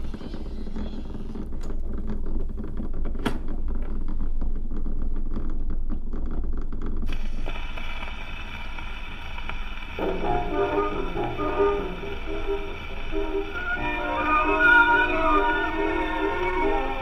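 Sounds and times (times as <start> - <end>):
vinyl crackles and pops: 0.0 - 17.0
faint steady higher tones: 10.0 - 17.0.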